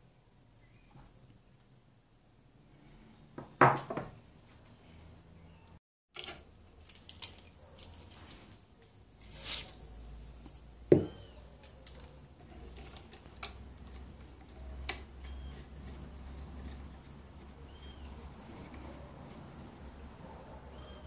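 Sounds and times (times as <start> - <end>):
aerosol can spraying: 9.2 - 9.9.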